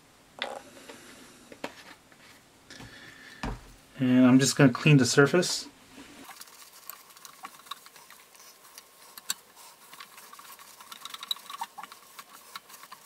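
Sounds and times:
cloth rag wiping metal plate: 0:08.0 - 0:13.0.

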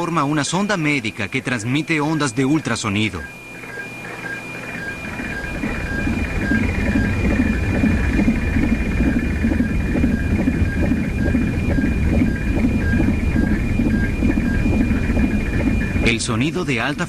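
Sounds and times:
steady high electronic tone: 0:00.0 - 0:17.0
low fluttering rumble: 0:04.9 - 0:16.2.

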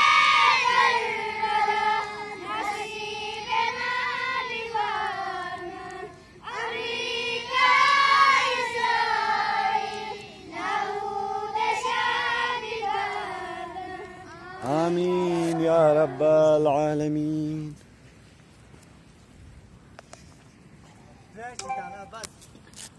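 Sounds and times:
children chanting melodically: 0:00.0 - 0:16.6.

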